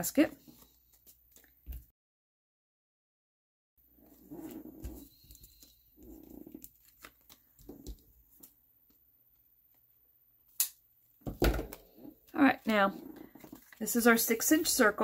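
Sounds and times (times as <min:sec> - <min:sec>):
cardstock rustling: 0:12.3 - 0:14.7.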